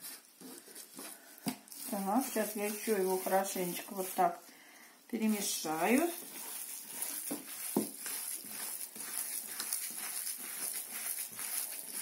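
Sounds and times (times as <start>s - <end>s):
hands kneading minced meat: 0.0s - 4.5s, 5.1s - 12.0s.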